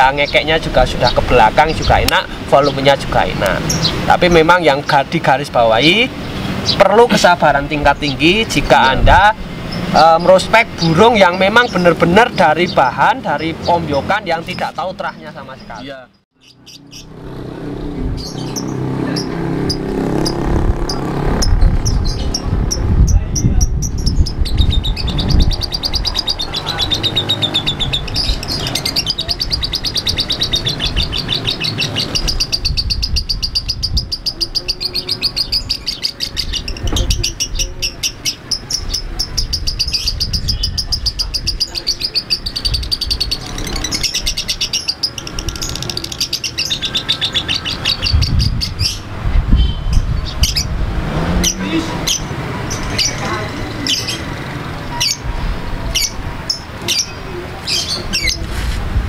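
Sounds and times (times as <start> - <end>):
lovebird chattering trill: 18.2 - 55.3.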